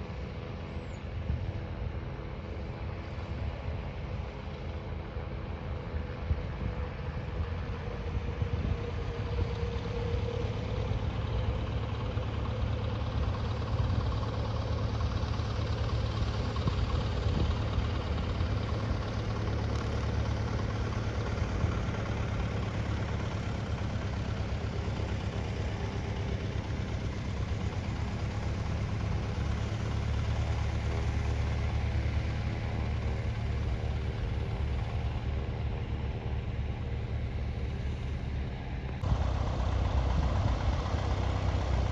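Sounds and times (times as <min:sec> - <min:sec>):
engine running at low revs: 0:00.0 - 0:41.9.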